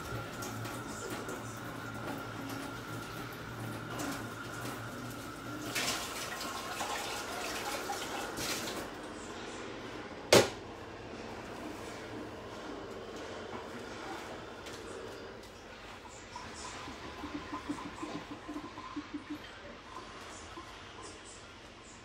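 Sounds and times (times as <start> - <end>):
water running: 0.0 - 9.4, 11.7 - 21.7.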